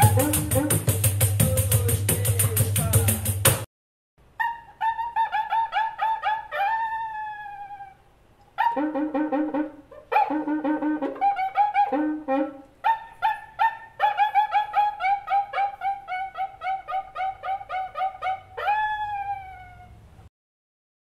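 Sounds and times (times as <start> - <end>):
instrumental music quick repeated notes: 0.0 - 3.6.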